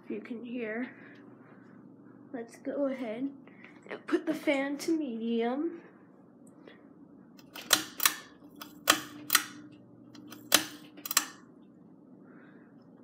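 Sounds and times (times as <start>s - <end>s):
faint fan motor hum: 0.0s - 13.0s
fan pull-chain switch clicking: 7.4s - 11.4s.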